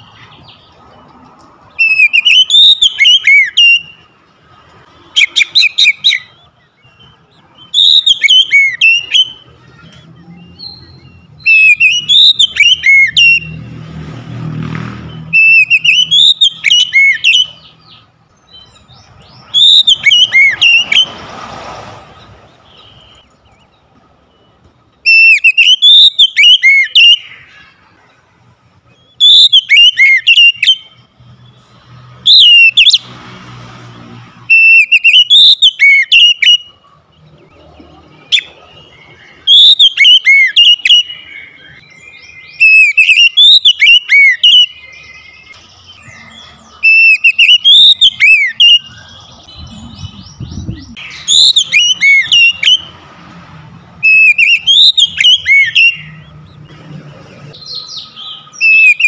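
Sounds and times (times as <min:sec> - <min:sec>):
bird singing whistled phrases: 0:01.8 - 0:04.0, 0:05.2 - 0:09.5, 0:10.3 - 0:13.6, 0:15.1 - 0:21.1, 0:24.3 - 0:27.6, 0:29.1 - 0:31.6, 0:32.3 - 0:33.0, 0:34.5 - 0:36.8, 0:38.2 - 0:52.9, 0:54.0 - 0:56.4, 0:57.6 - 0:59.0.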